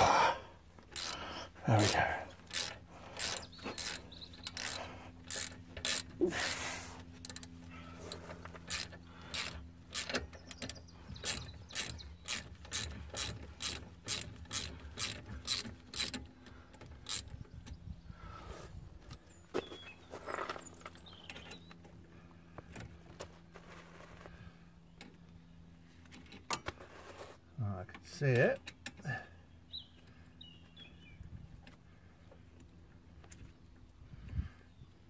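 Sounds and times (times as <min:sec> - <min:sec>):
socket ratchet clicking: 0:00.9 - 0:01.2, 0:02.4 - 0:06.2, 0:08.6 - 0:16.3.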